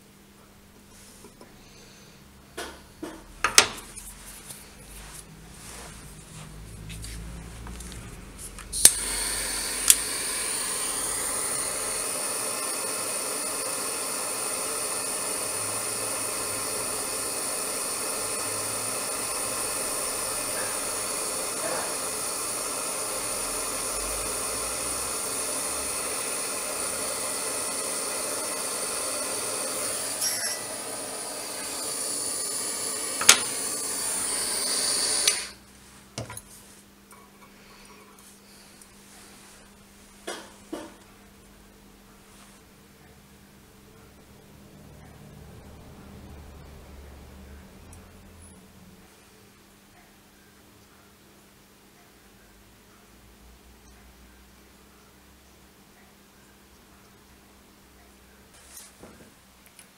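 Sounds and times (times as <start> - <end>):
butane torch hissing: 4.8 - 35.7
torch igniter clicks: 8.6 - 35.6.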